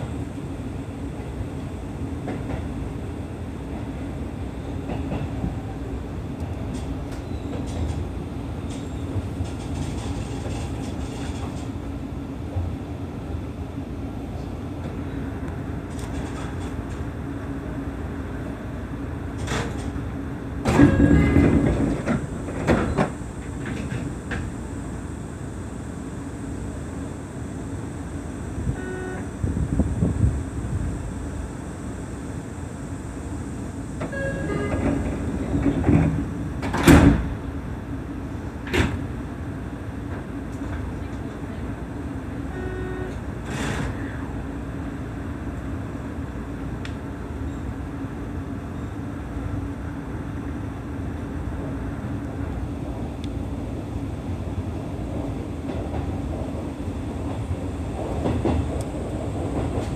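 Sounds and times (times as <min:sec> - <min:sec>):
train doors sliding open: 0:00.0 - 0:59.9
train low hum: 0:00.0 - 0:59.9
brief beeping tones: 0:28.7 - 0:29.3.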